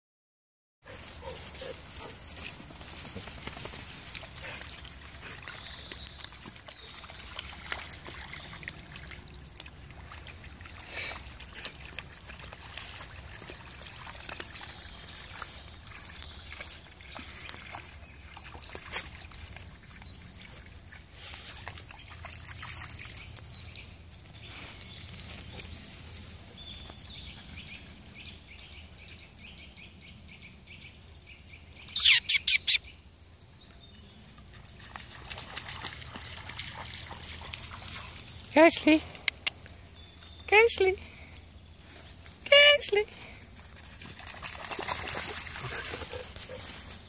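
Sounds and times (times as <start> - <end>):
water sloshing and splashing: 2.7 - 24.1, 34.5 - 38.6, 43.2 - 47.0
short high bird chirps: 31.8 - 32.9.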